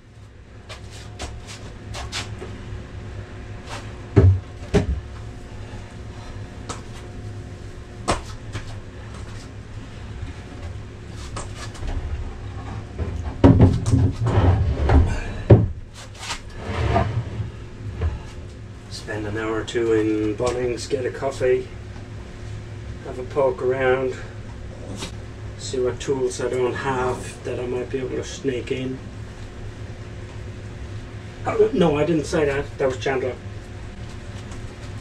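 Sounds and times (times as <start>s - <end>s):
steady low hum: 0.0s - 35.0s
heavy bumps: 4.1s - 5.2s, 10.6s - 18.5s
boards clacking and knocking: 13.0s - 15.8s.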